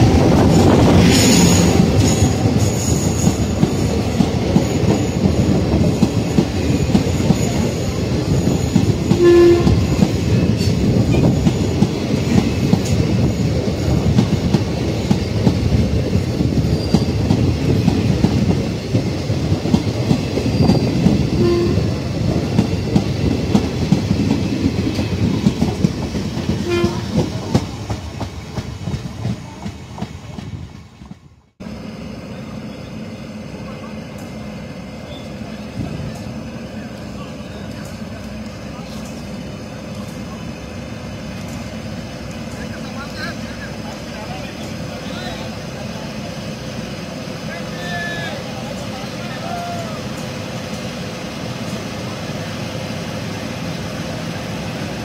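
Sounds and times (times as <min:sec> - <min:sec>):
low train rumble: 0:00.0 - 0:55.0
train wheels clattering over rail joints: 0:22.3 - 0:31.2.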